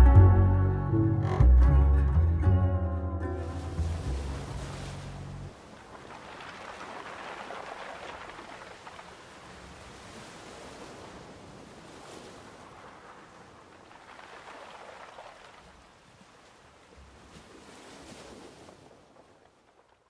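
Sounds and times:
sea waves washing: 0:03.4 - 0:19.4.

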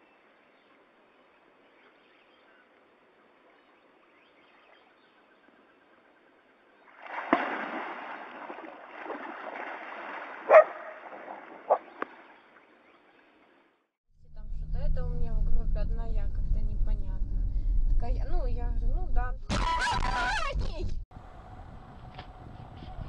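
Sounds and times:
water splashing and churning: 0:06.8 - 0:13.7.

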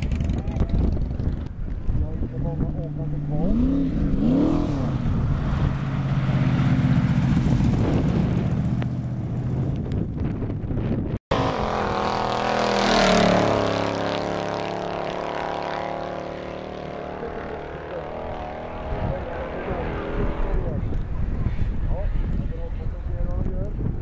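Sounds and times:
pickup truck engine passing by: 0:03.0 - 0:09.8.

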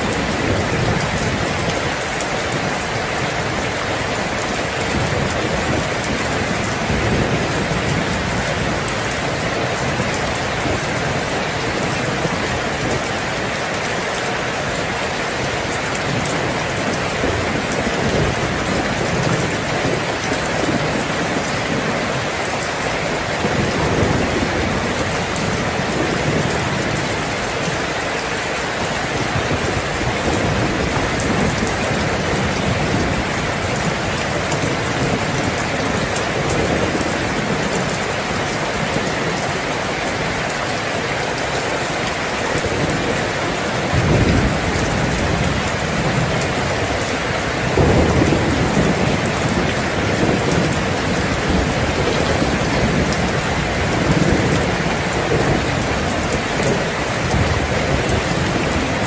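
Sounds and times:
heavy rain: 0:00.0 - 0:59.0
thunder rolling: 0:23.4 - 0:27.8, 0:42.7 - 0:59.0.

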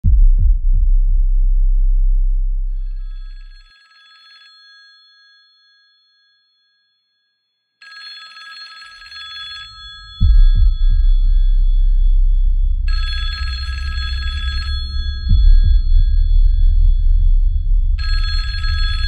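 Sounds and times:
deep electronic bass note: 0:00.0 - 0:03.5, 0:10.2 - 0:19.0
telephone ringing: 0:03.1 - 0:05.9, 0:07.8 - 0:10.3, 0:12.9 - 0:15.3, 0:18.0 - 0:19.0.

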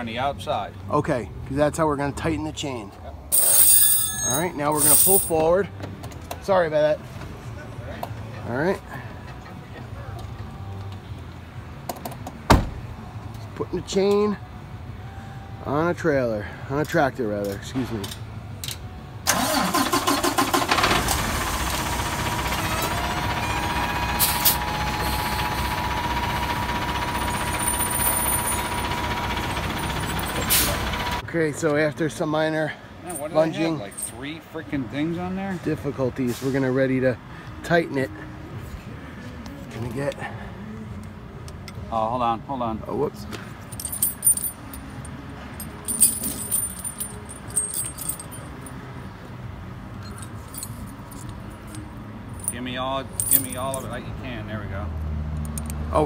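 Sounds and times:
tire chains clinking and rattling: 0:03.3 - 0:05.7, 0:19.3 - 0:31.2, 0:33.0 - 0:34.6, 0:43.5 - 0:49.3, 0:49.9 - 0:54.6, 0:55.4 - 0:56.0
truck diesel engine idling: 0:19.3 - 0:31.2.

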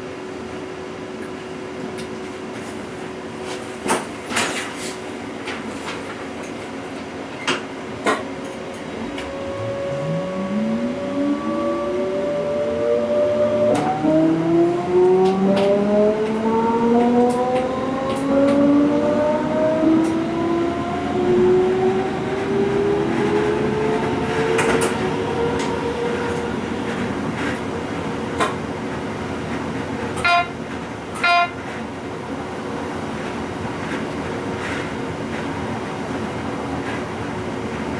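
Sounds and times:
train traction whine rising: 0:08.0 - 0:30.2
wheel-on-rail running noise: 0:20.0 - 0:37.9
short beeps: 0:31.2 - 0:31.6.

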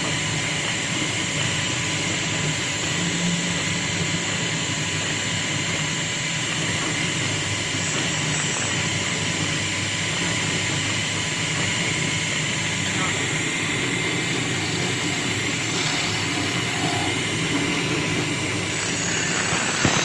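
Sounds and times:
wood lathe whining: 0:00.0 - 0:20.0
turning tool cutting wood: 0:10.2 - 0:20.0.

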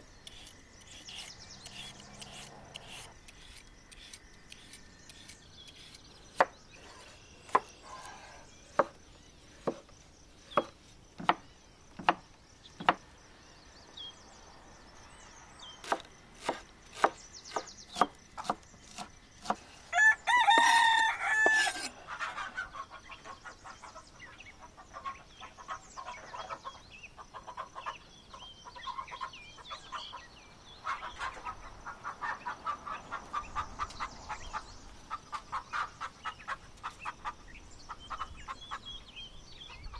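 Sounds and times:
knife chopping on wooden board: 0:07.5 - 0:09.0, 0:09.6 - 0:09.8, 0:10.6 - 0:11.4, 0:12.0 - 0:12.2, 0:12.8 - 0:13.0, 0:15.8 - 0:19.7, 0:20.5 - 0:20.8, 0:21.4 - 0:21.9
rooster crowing: 0:19.9 - 0:21.9.

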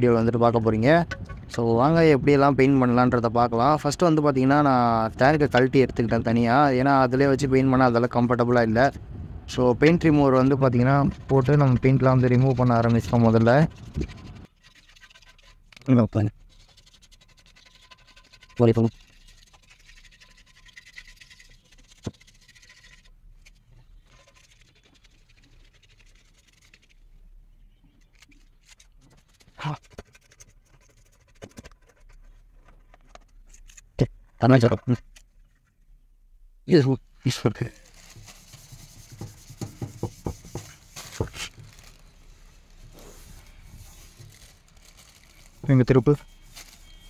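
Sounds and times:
scraper scraping metal tank: 0:10.3 - 0:15.7.

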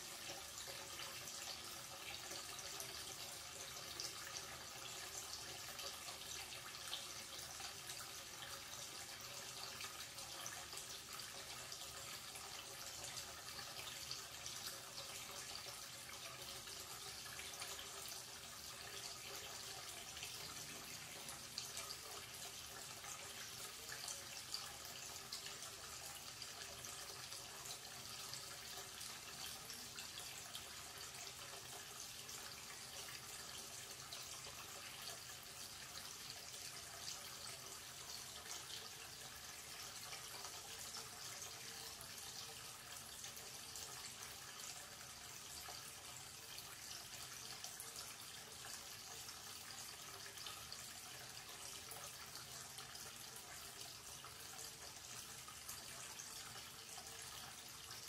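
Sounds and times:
tap water running into basin: 0:00.0 - 0:58.0.

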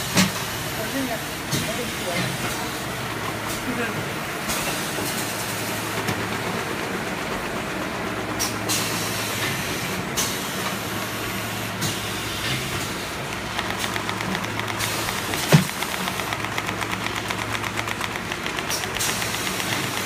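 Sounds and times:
packaging machine hum and hiss: 0:00.0 - 0:20.0
sharp machine clacks: 0:11.8 - 0:20.0
fast ticking: 0:13.3 - 0:20.0.

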